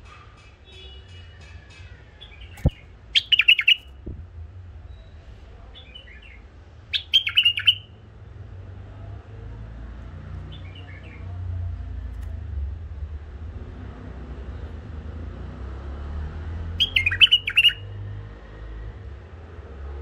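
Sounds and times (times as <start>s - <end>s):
bird chattering song: 2.2s - 4.1s, 5.8s - 8.0s, 16.8s - 18.0s.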